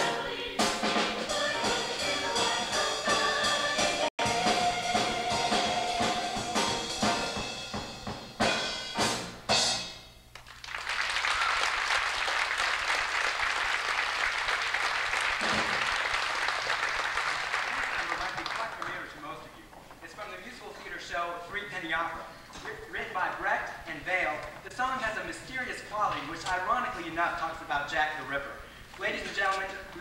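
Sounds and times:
show choir singing with accompaniment: 0.0 - 7.4
audience applause: 10.4 - 19.0.

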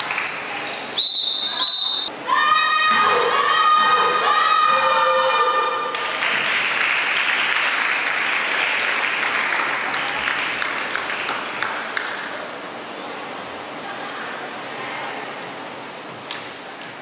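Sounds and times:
crowd applauding: 5.9 - 12.2.

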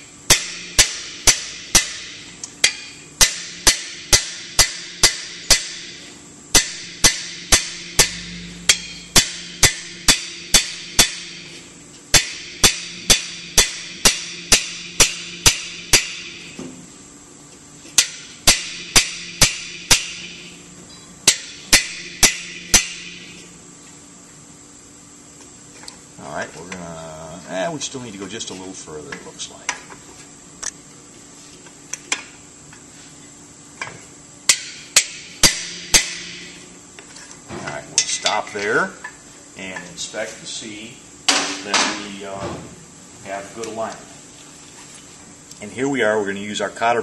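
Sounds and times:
hammer striking metal driver bar: 0.3 - 11.5, 12.1 - 16.5, 18.0 - 20.5, 21.2 - 23.3, 34.5 - 36.5.

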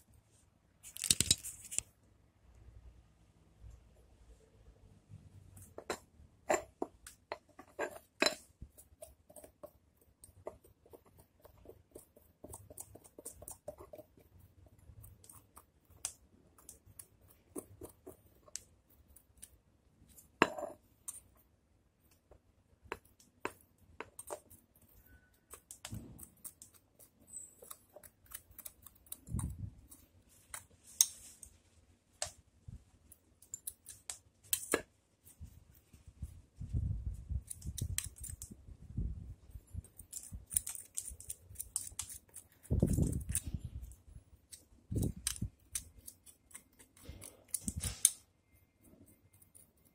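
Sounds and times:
scissors snipping: 25.4 - 31.2, 37.4 - 38.6, 39.9 - 48.2.

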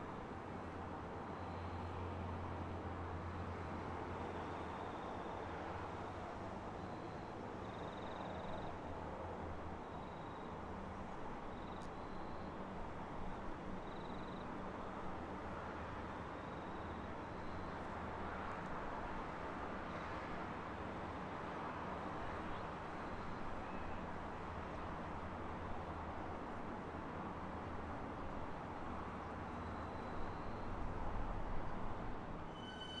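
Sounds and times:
distant electric train rumbling: 32.4 - 33.0
short high chirps: 32.5 - 33.0.

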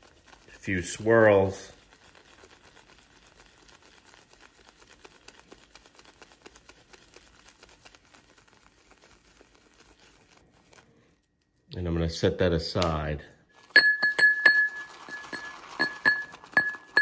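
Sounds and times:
shaving brush swishing on soap: 0.0 - 12.3, 13.5 - 17.0.

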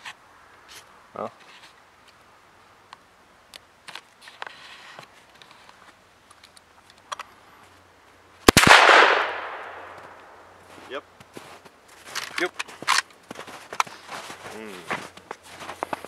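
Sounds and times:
rifle shot with echo: 8.5 - 10.4.

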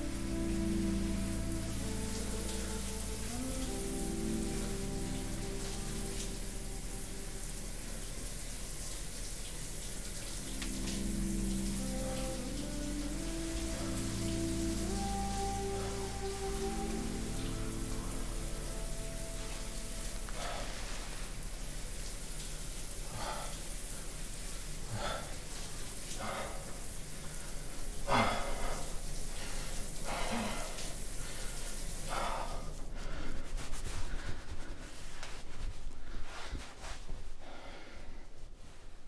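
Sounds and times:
shower water running: 0.0 - 37.6
man breathing out heavily: 37.4 - 38.3.

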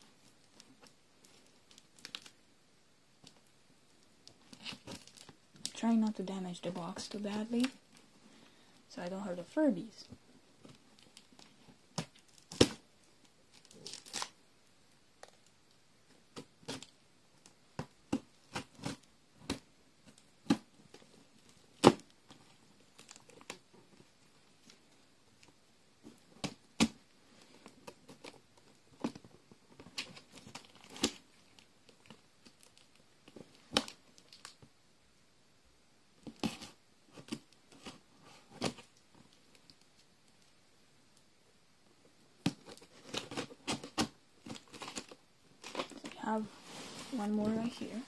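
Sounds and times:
cardboard crinkling: 4.3 - 8.0, 10.6 - 14.4, 25.4 - 34.6, 42.5 - 48.0
tape and cardboard tearing: 13.6 - 14.4.

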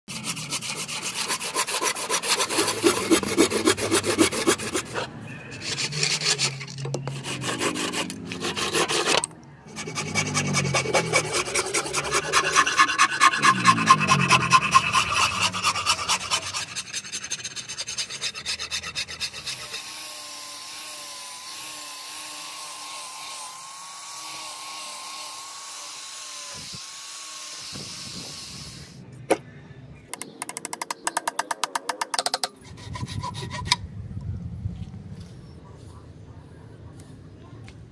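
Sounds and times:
hand saw strokes through wood: 0.1 - 20.0, 32.6 - 33.8
angle grinder whine: 4.9 - 16.9, 19.5 - 29.0.

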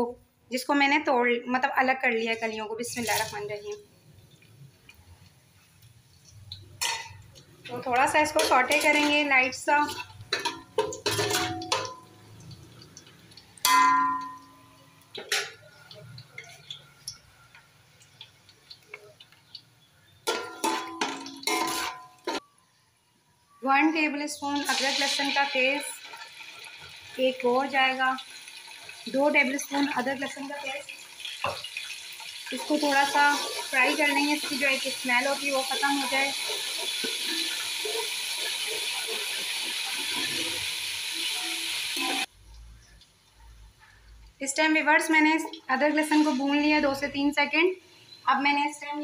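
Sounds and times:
spices crackling in oil: 2.2 - 22.6, 24.5 - 48.6
metal spoon scraping pot: 7.8 - 12.1, 20.3 - 22.4, 32.5 - 42.3
pot ringing: 10.3 - 12.2, 13.6 - 15.7, 20.2 - 22.5, 41.2 - 42.3.

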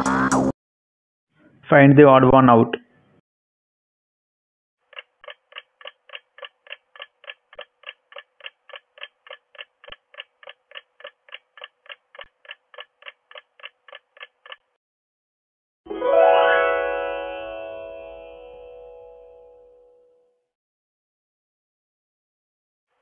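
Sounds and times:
clock ticking timer: 4.9 - 14.8.

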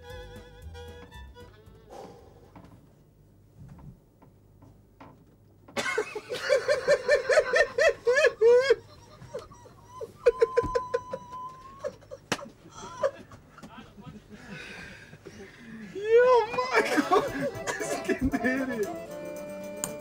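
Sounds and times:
man laughing loudly: 5.8 - 13.7, 16.4 - 19.0.

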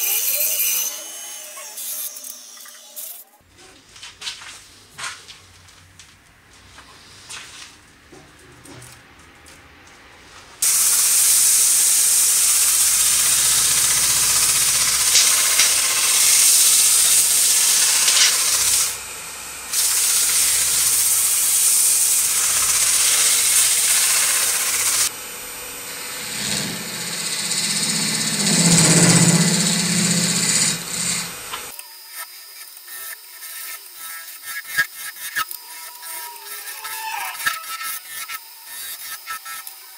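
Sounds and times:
wooden bowl spinning on lathe hiss: 10.6 - 39.9
turning tool scraping wood: 12.4 - 19.0, 19.7 - 25.1, 26.0 - 39.7.

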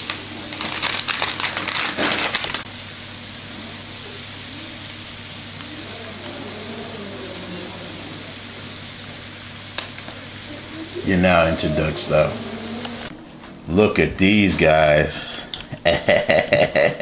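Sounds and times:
patties sizzling on a grill: 0.0 - 13.1
dense crackling: 4.8 - 13.4.

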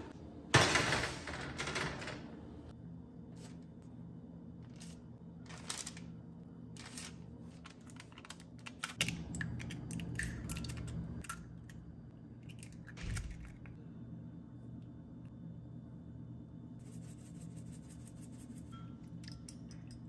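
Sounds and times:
parchment paper rustling: 4.6 - 9.0.

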